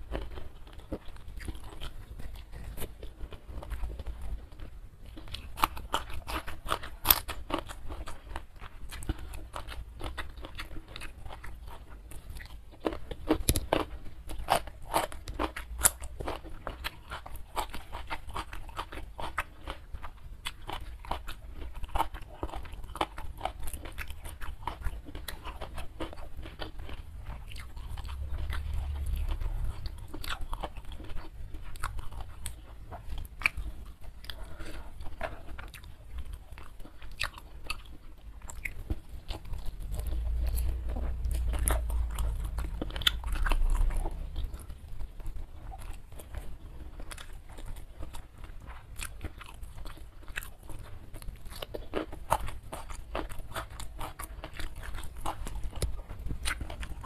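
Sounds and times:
person chewing and crunching food: 0.0 - 57.0
low rumble: 27.2 - 30.9, 39.5 - 46.0.

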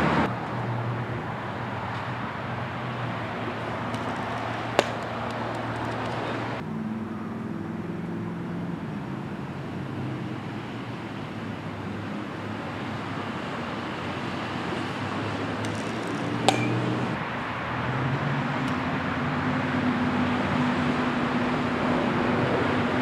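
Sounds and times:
distant road traffic: 0.0 - 23.0
sharp crack: 3.7 - 6.4.

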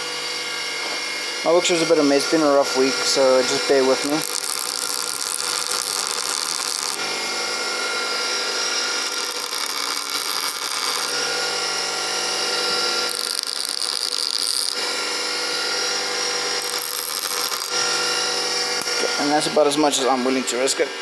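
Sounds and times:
grinding wheel motor hum: 0.0 - 21.0
metal grinding hiss: 1.5 - 7.0, 8.8 - 11.9, 12.7 - 21.0.

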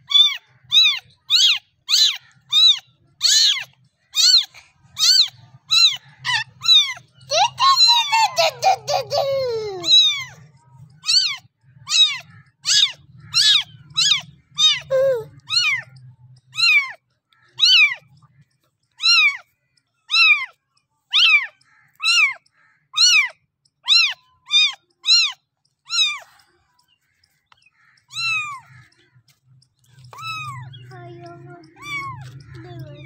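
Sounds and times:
kitten meowing: 0.1 - 8.2, 9.8 - 10.4, 11.0 - 15.8, 16.6 - 17.0, 19.0 - 19.4, 20.1 - 20.5, 21.1 - 22.4, 23.0 - 26.2, 28.1 - 28.6, 30.1 - 30.7, 31.7 - 32.3.

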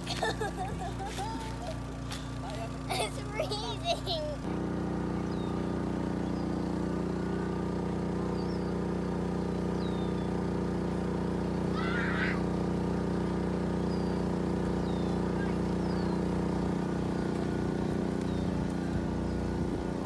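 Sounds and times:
motor humming: 0.0 - 20.0
bird chirps: 5.2 - 6.6, 8.3 - 8.8, 9.4 - 10.4, 13.8 - 16.3, 16.9 - 19.5.

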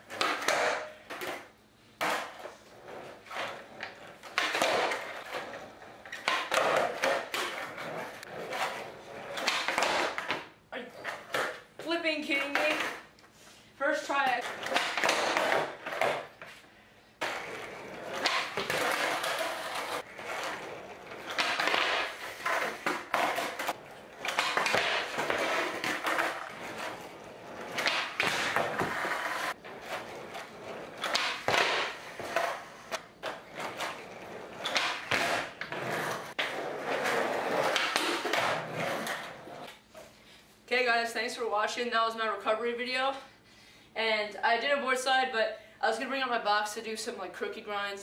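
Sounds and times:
skateboard wheels rolling on concrete: 0.0 - 13.1, 14.0 - 40.0
skateboard clacking down: 14.4 - 16.2, 17.2 - 39.6.

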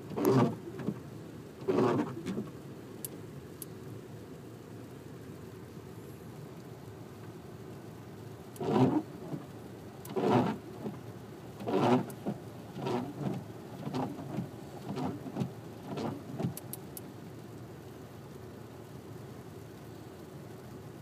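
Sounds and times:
wiper blades sweeping wet glass: 0.0 - 2.6, 8.5 - 17.1.

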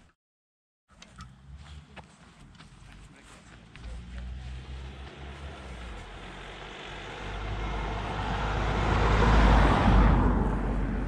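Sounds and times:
car driving past: 3.6 - 11.0.

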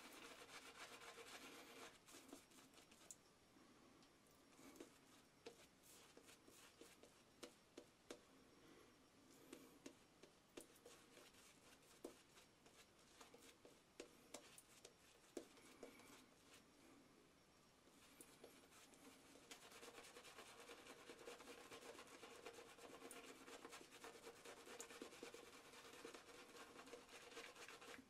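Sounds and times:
shaving brush scratching on face: 0.0 - 3.1, 18.6 - 28.0.

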